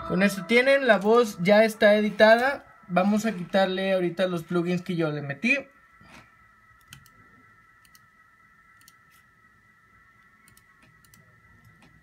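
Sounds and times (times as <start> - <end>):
faint high whine: 0.0 - 12.0
computer mouse clicks: 6.8 - 7.2, 7.8 - 8.1, 8.8 - 9.2, 10.4 - 12.0.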